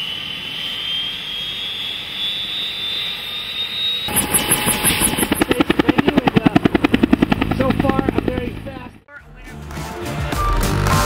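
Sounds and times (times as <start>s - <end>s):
helicopter turbine whine: 0.0s - 9.0s
helicopter rotor beating: 4.1s - 9.0s.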